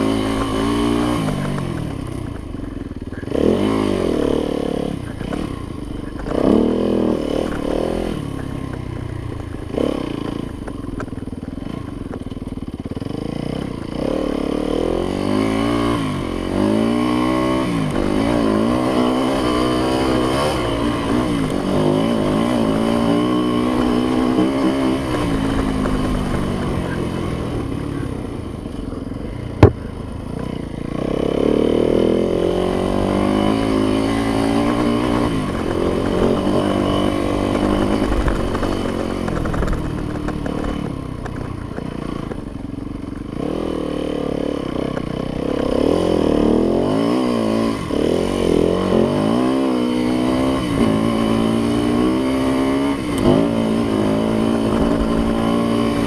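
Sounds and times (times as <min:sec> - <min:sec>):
dirt bike engine revving: 0:00.0 - 0:56.0.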